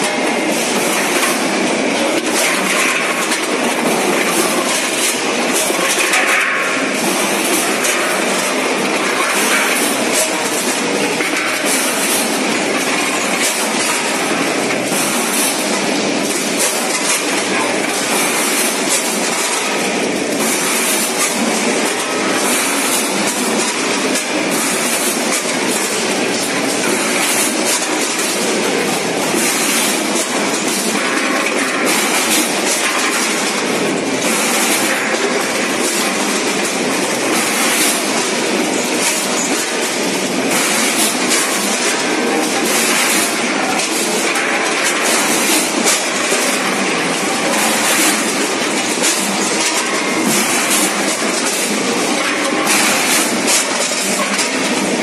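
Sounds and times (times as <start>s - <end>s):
weigher clattering with frozen pieces: 0.0s - 55.0s.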